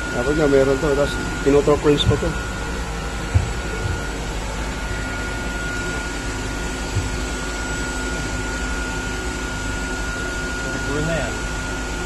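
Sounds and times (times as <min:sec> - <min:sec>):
electrical equipment whirring hum: 0:00.0 - 0:12.0
thin high whine: 0:00.0 - 0:12.0
soft thump: 0:03.3 - 0:04.0.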